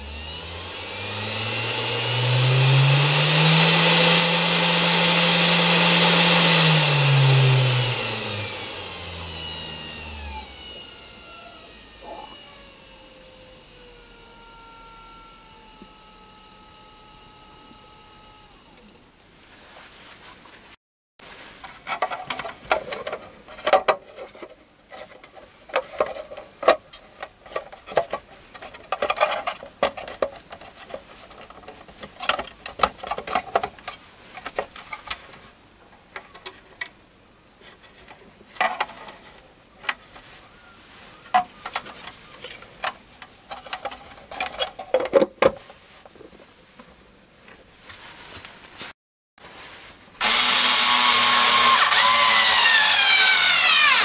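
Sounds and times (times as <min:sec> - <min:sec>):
cordless screwdriver running: 0:00.0 - 0:19.0, 0:50.2 - 0:54.0
plastic and metal knocks and rattles: 0:42.8 - 0:45.7.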